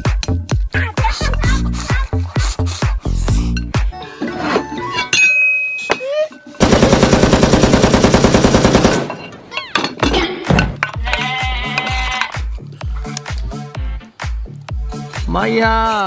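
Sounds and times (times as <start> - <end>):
machine-gun fire: 6.6 - 9.1.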